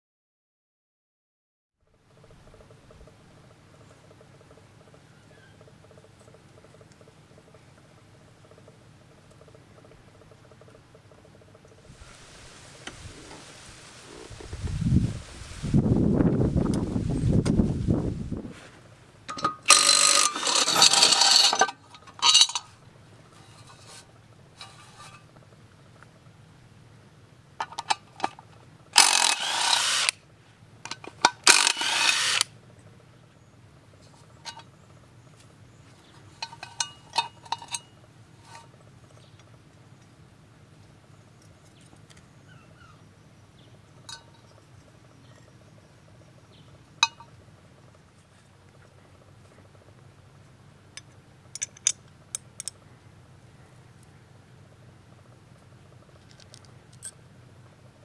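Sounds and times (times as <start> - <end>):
metallic clinks of bolts: 19.3 - 22.7, 36.4 - 37.9, 51.5 - 52.8, 56.3 - 57.2
power driver whirring: 19.7 - 21.6, 29.0 - 30.2, 31.4 - 32.5.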